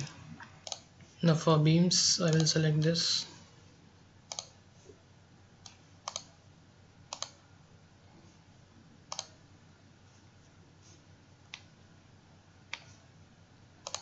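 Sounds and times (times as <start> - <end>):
faint room hiss: 0.0 - 14.0
computer mouse double-clicks: 4.3 - 4.5, 5.6 - 6.3, 7.1 - 7.4, 9.1 - 9.4.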